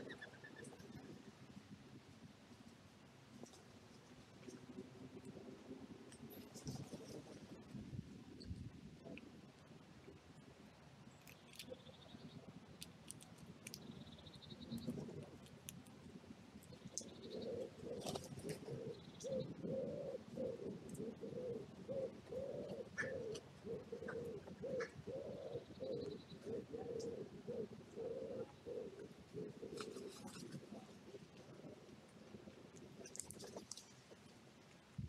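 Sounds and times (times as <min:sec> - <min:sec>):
pigeon cooing: 0:00.0 - 0:01.2, 0:16.7 - 0:31.8.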